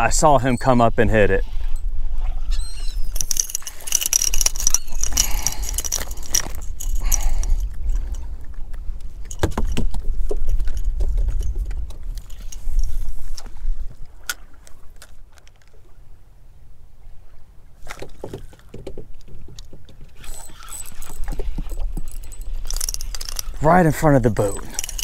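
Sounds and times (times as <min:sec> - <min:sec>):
tackle jangling: 0:03.1 - 0:13.1, 0:20.2 - 0:25.0.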